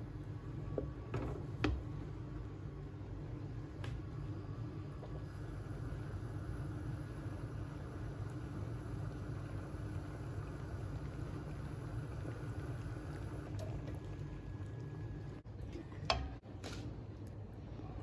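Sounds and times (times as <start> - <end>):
soup simmering rumble: 0.0 - 16.4.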